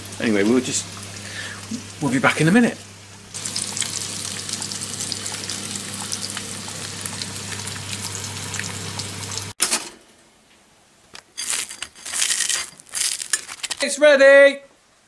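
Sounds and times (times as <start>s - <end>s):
eggs sizzling in a pan: 0.0s - 9.6s
knife scraping toast: 11.2s - 13.8s.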